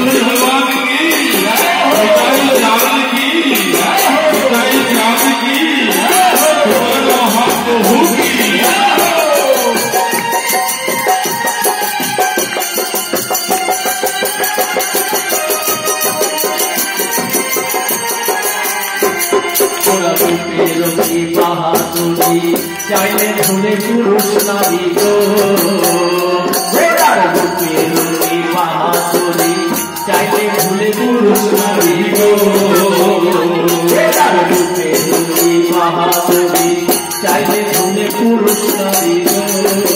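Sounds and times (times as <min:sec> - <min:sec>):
voices singing a chant: 0:00.0 - 0:10.6, 0:19.8 - 0:39.9
fast jingling percussion: 0:00.0 - 0:39.9.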